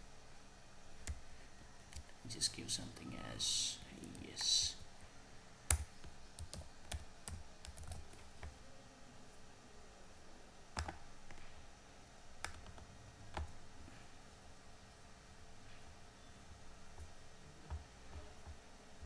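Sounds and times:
keyboard typing: 5.7 - 8.6, 10.8 - 11.5, 12.4 - 13.6.

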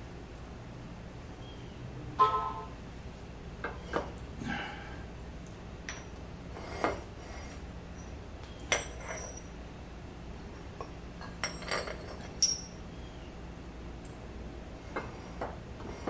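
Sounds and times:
metal parts clinking: 8.6 - 9.5, 11.2 - 12.8.

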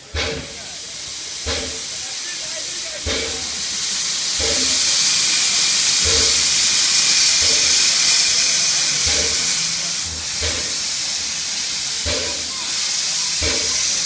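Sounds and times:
steam locomotive venting steam: 0.0 - 14.0.

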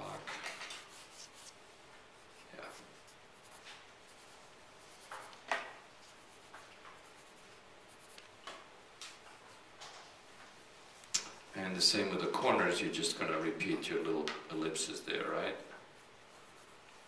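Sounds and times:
pencil scratching on paper: 0.4 - 1.6, 2.2 - 5.4, 6.0 - 8.2, 15.8 - 17.0.

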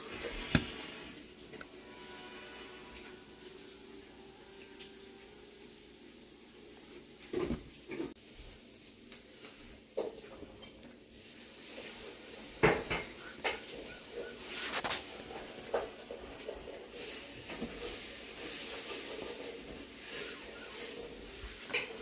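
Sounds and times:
dough handling noise: 0.0 - 1.7, 7.2 - 22.0.

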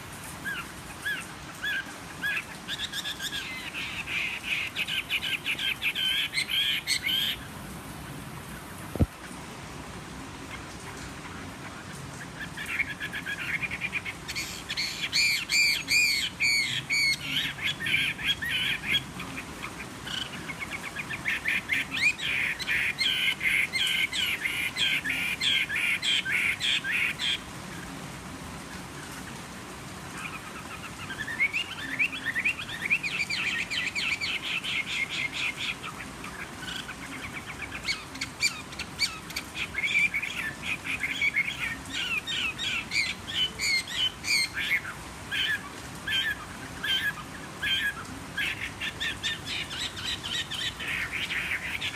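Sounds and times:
bird singing rapid varied phrases: 12.2 - 27.4, 30.2 - 51.9.

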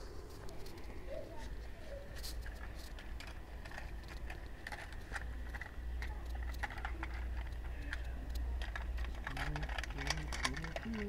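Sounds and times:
plastic toys clicking and tapping: 2.2 - 11.0.

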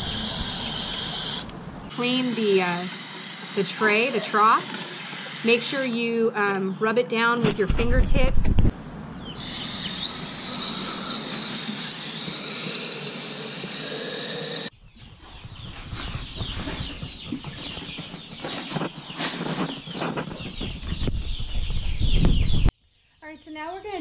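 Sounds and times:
hose nozzle spraying water: 0.0 - 6.0
chicks peeping: 9.2 - 13.0, 14.9 - 22.7
paper bag rustling: 15.9 - 20.4.

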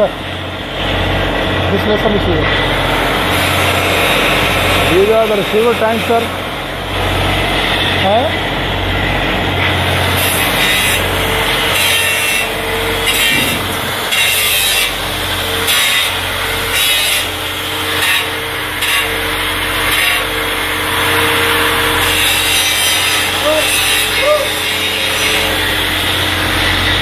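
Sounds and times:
machinery hum: 0.0 - 27.0
high-pitched scraping strokes: 10.1 - 19.2, 19.8 - 26.2.

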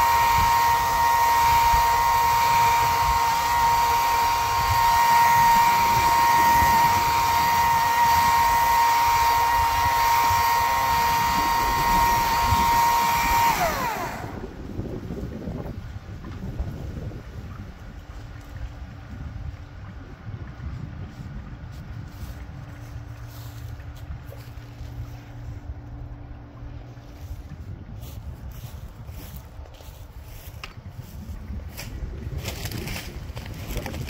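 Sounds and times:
power tool whine: 0.0 - 14.9.

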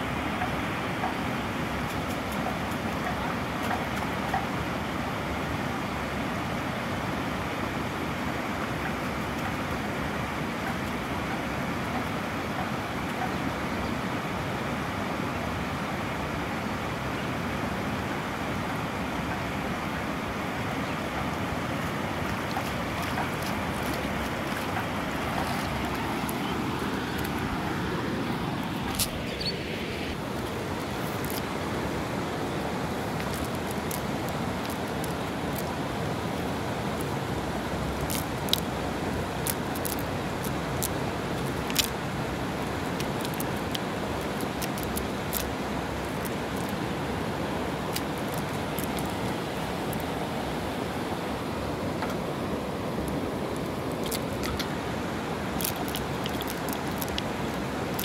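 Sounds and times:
water pouring over a weir: 22.2 - 26.5, 32.9 - 46.9, 47.5 - 50.0, 53.8 - 58.0.

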